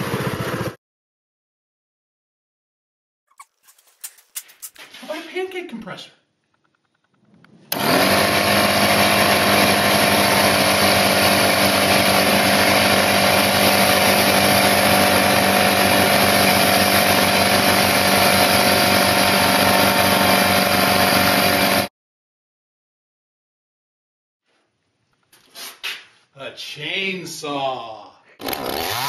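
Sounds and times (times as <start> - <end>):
air compressor running: 7.7 - 21.9, 28.4 - 29.0.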